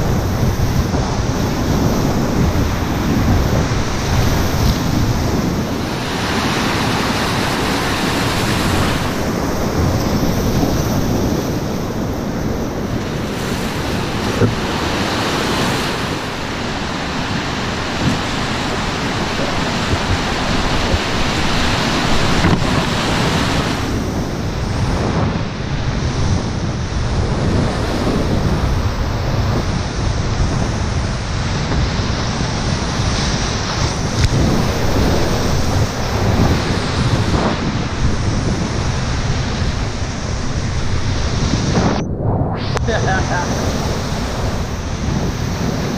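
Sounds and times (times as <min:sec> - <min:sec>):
whitewater rapids rushing: 0:00.0 - 0:25.1
wind noise on microphone: 0:00.0 - 0:45.9.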